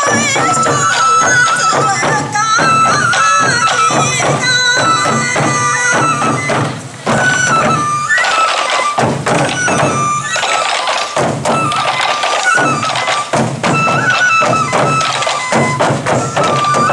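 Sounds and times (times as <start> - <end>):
bamboo flute melody: 0.0 - 16.9
taiko drums in rhythm: 0.0 - 16.9.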